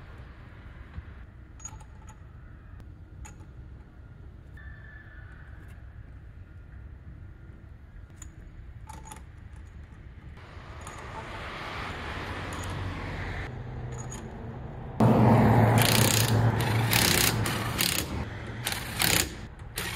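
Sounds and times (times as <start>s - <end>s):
power tool humming: 15.0s - 19.9s.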